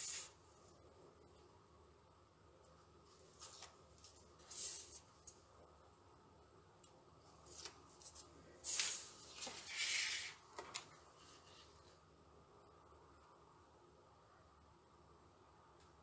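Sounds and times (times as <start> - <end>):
paper rustling and scraping: 0.0 - 0.4, 3.1 - 5.4, 7.4 - 12.0.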